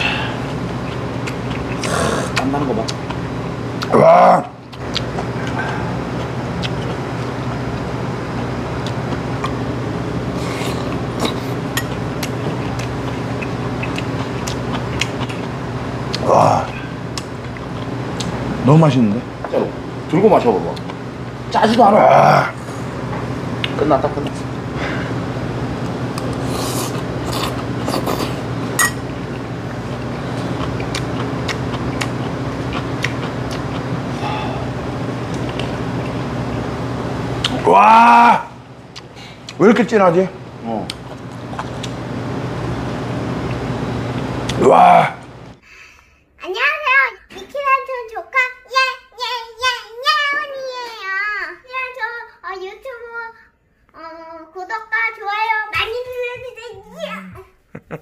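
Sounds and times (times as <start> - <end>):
person slurping and chewing: 0.0 - 3.1, 10.3 - 15.5, 26.3 - 28.5, 29.4 - 36.2
machine hum: 0.0 - 48.3
spoon clinking metal bowl: 28.8 - 29.0.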